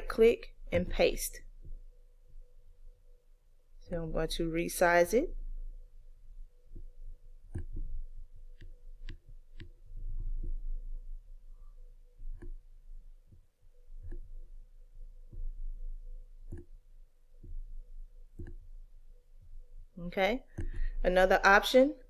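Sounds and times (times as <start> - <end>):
low steady hum: 0.0 - 22.0
computer mouse clicking: 7.5 - 9.8, 12.2 - 12.6, 13.3 - 14.4, 16.4 - 16.8, 18.3 - 18.6, 20.5 - 21.0.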